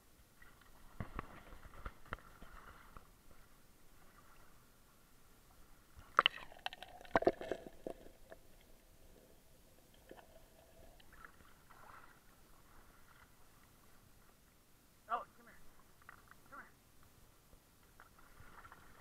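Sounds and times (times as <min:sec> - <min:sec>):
water splashing: 0:00.3 - 0:04.6, 0:06.0 - 0:08.7, 0:10.0 - 0:14.1, 0:18.0 - 0:19.0.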